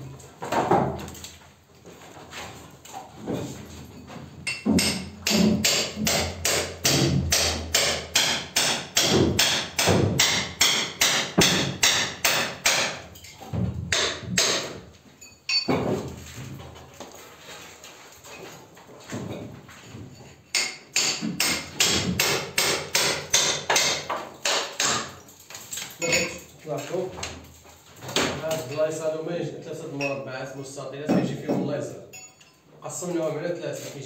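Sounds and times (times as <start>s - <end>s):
rapid hammering: 4.5s - 13.0s, 13.9s - 14.8s, 20.6s - 25.2s.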